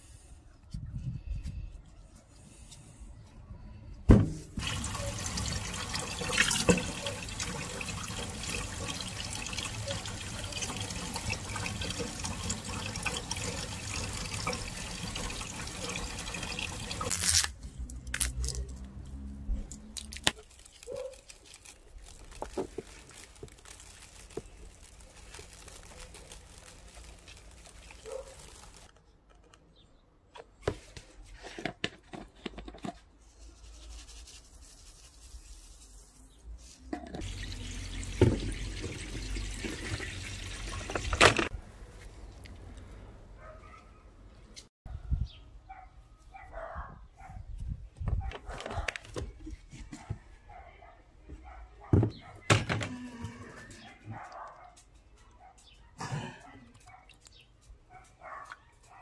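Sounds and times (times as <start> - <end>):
tap water running into sink: 4.6 - 17.1, 37.2 - 41.5
knocks and handling sounds: 17.1 - 33.5.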